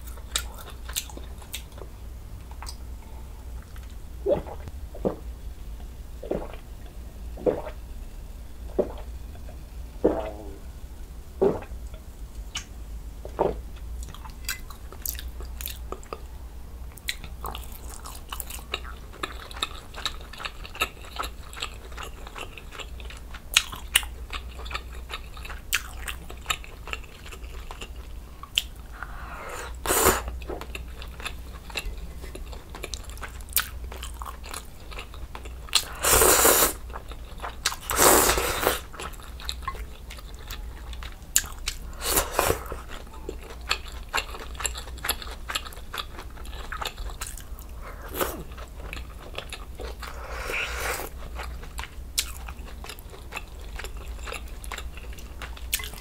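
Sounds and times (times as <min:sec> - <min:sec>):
slurping: 0:06.2 - 0:06.6, 0:07.4 - 0:07.8, 0:10.0 - 0:10.6, 0:11.4 - 0:11.7, 0:35.8 - 0:36.8, 0:37.8 - 0:38.9, 0:49.9 - 0:51.2
wet chewing: 0:29.8 - 0:56.0.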